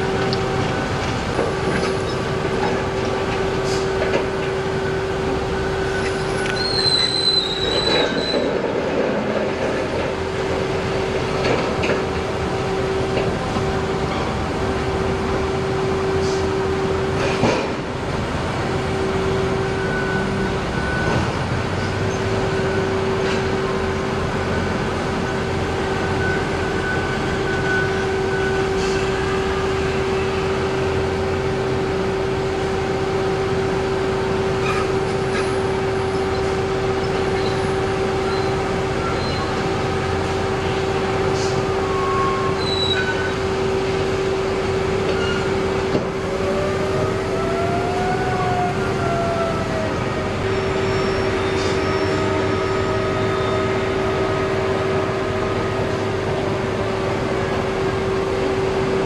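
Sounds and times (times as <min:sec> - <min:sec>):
heavy machinery humming: 0:00.0 - 0:59.0.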